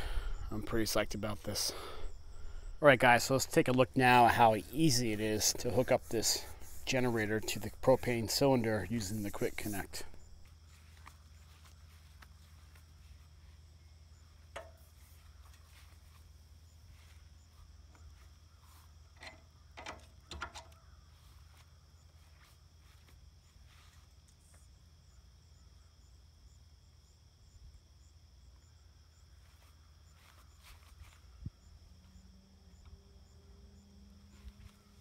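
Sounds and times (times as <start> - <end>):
low hum: 0.0 - 7.0
insects chirring: 0.0 - 35.0.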